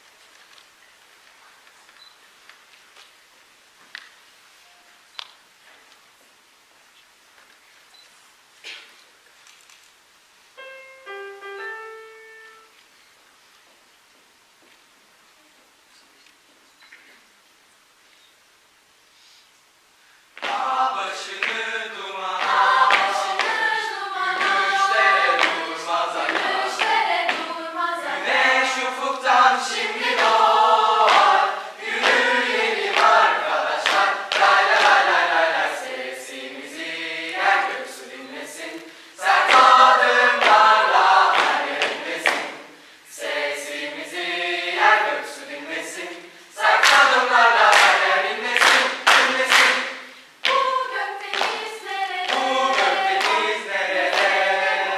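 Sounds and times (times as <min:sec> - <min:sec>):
hand claps: 0:20.4 - 0:20.7, 0:21.3 - 0:21.6, 0:22.4 - 0:23.6, 0:24.4 - 0:27.5, 0:31.0 - 0:31.4, 0:32.0 - 0:33.2, 0:33.8 - 0:35.1, 0:39.4 - 0:39.8, 0:40.4 - 0:42.6, 0:46.8 - 0:50.7, 0:51.3 - 0:54.4
choir singing a cappella: 0:20.4 - 0:54.9.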